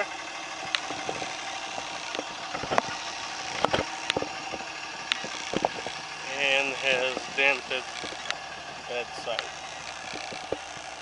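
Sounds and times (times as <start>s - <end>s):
diesel engine idling: 0.0s - 11.0s
sharp clicks and knocks: 0.6s - 11.0s.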